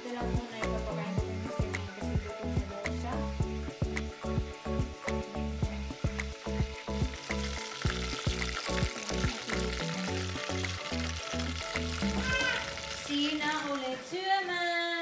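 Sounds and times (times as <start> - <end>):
music with steady beat and bass: 0.0 - 12.8
spring rolls sizzling in oil: 0.0 - 14.1.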